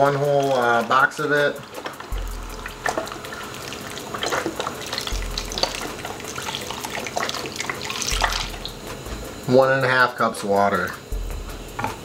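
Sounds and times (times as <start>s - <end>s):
liquid pouring into a pot: 0.0s - 8.8s.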